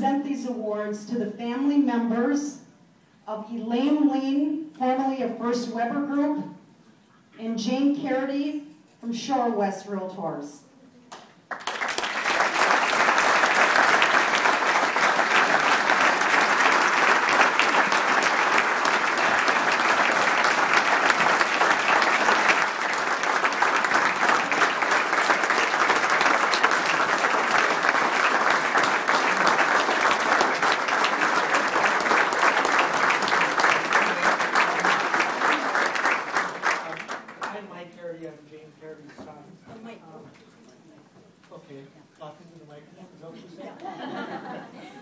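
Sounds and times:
audience applauding: 0:11.5 - 0:37.6.

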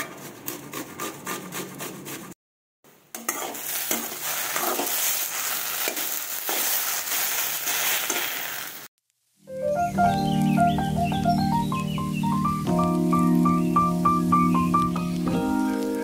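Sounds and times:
beetroot being grated: 0:00.0 - 0:02.4
ladle stirring in a pan: 0:03.1 - 0:08.7
food sizzling in hot oil: 0:03.1 - 0:09.5, 0:12.5 - 0:16.0.

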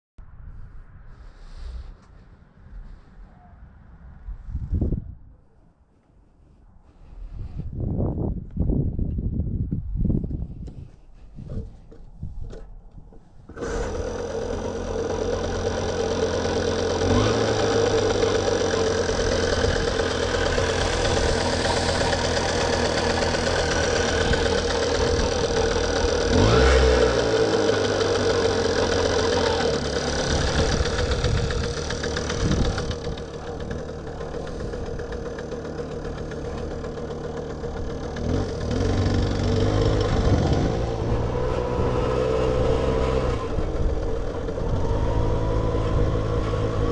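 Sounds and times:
moped engine revving: 0:13.5 - 0:46.9.

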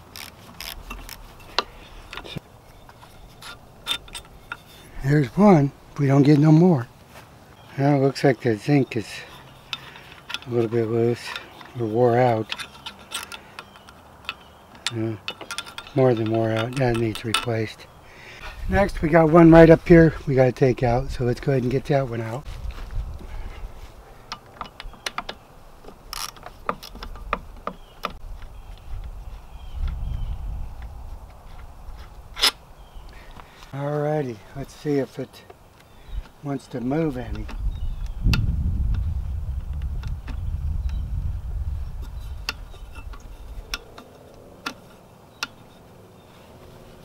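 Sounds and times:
low rumble: 0:37.5 - 0:43.7.

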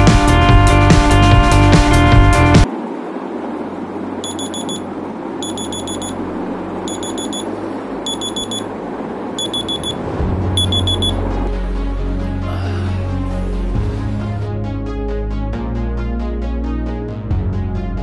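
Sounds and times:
alarm clock beeping: 0:04.2 - 0:04.8, 0:05.4 - 0:06.2, 0:06.8 - 0:07.5, 0:08.1 - 0:08.7, 0:09.4 - 0:10.0, 0:10.6 - 0:11.2.

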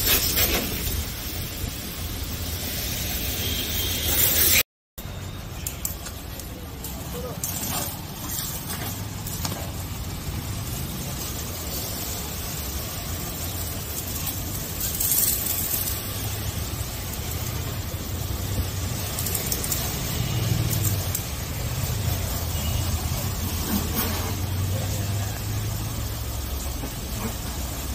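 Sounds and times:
pressure washer spray hissing: 0:06.4 - 0:27.9.

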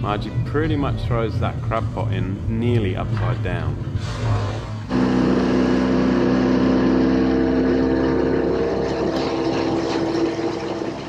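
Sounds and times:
outboard motor running: 0:04.7 - 0:11.0.

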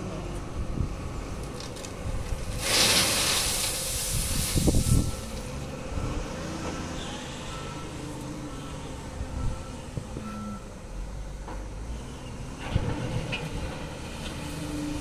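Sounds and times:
diesel engines running: 0:00.0 - 0:15.0
crushed stone pouring into truck bed: 0:01.6 - 0:05.4.

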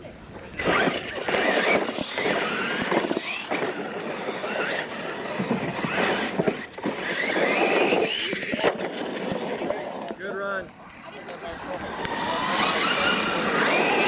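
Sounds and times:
electric motors whining: 0:00.5 - 0:14.0
toy trucks landing knocks: 0:00.6 - 0:10.2
tyres scrabbling on loose dirt: 0:00.6 - 0:10.8, 0:12.0 - 0:14.0.

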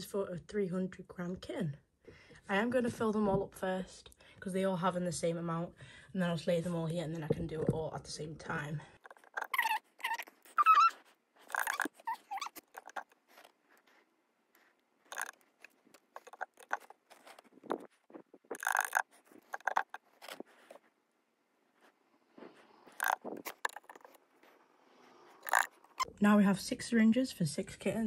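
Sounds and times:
rustles taps and scrapes: 0:09.0 - 0:21.0, 0:21.7 - 0:26.1
kitten mewing: 0:09.3 - 0:13.1.

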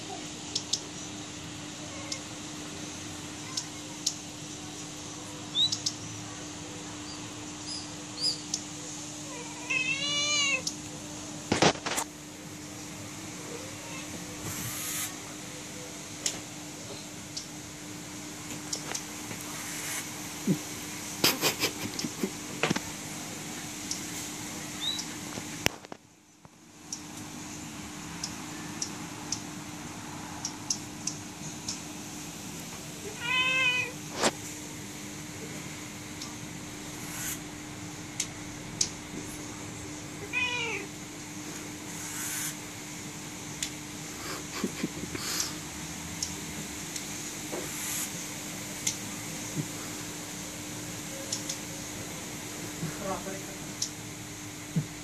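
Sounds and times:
steady low hum: 0:00.0 - 0:55.0
cat meowing: 0:09.2 - 0:10.7, 0:33.0 - 0:34.0, 0:40.2 - 0:40.9
brief hiss: 0:14.4 - 0:15.2, 0:37.0 - 0:37.4, 0:42.0 - 0:42.6, 0:47.7 - 0:48.1.

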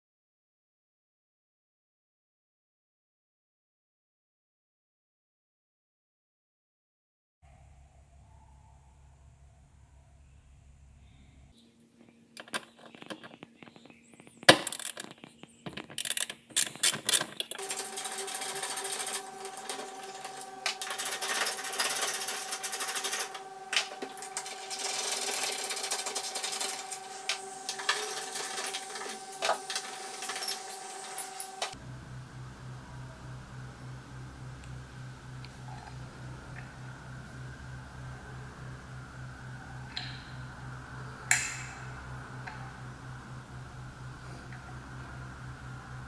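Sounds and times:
steady hum: 0:07.5 - 0:46.0.

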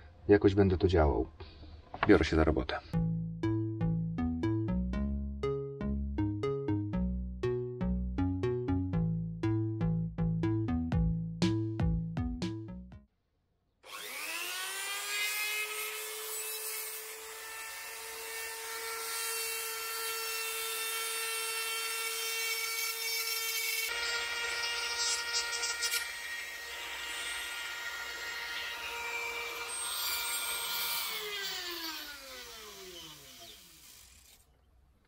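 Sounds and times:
electric grinder whining: 0:13.9 - 0:21.2, 0:21.8 - 0:34.4
grinding scraping rasp: 0:23.9 - 0:34.5.

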